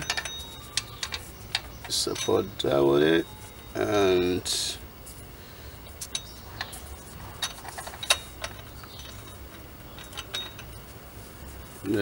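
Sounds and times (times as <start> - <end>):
metal wheel stud clicking: 0.0 - 3.8, 6.0 - 6.8, 7.4 - 10.8.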